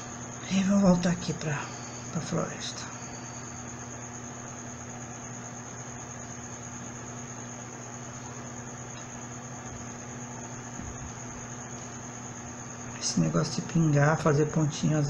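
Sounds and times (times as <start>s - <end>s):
continuous high-pitched tone: 0.0s - 15.0s.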